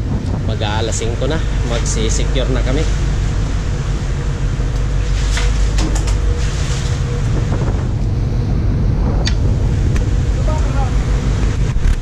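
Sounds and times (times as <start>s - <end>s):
low rumble of ship machinery: 0.0s - 12.0s
wind on microphone: 0.0s - 12.0s
swish of water on deck: 4.9s - 8.0s.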